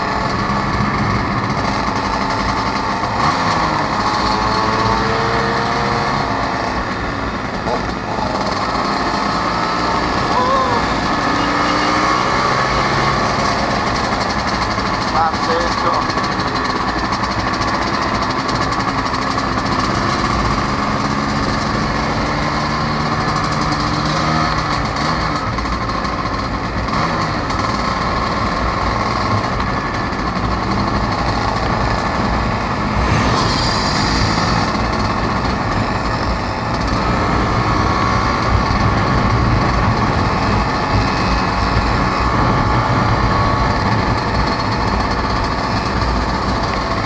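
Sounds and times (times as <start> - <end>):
scooter engine running: 0.0 - 47.0
wind and road noise: 0.0 - 47.0.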